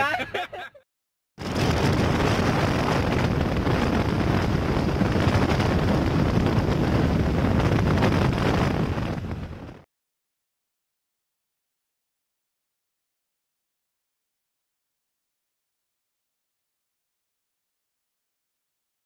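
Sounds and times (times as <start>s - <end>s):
wind rushing over microphone: 1.4s - 9.9s.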